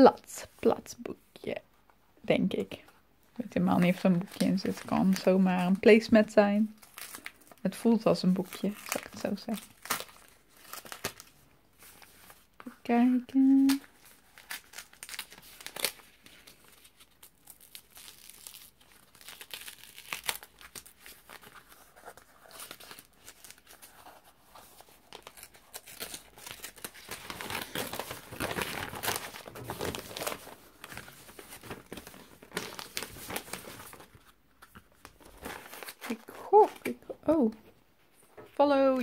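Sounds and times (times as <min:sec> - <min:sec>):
paper wrapping torn and crinkled: 0:06.7 - 0:07.7, 0:08.3 - 0:12.5, 0:13.5 - 0:37.0.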